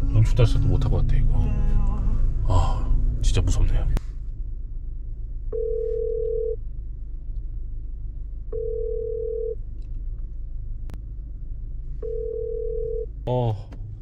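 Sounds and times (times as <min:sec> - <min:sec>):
low steady rumble: 0:00.0 - 0:14.0
telephone ringback tone: 0:05.6 - 0:06.6, 0:08.6 - 0:09.6, 0:12.0 - 0:13.0.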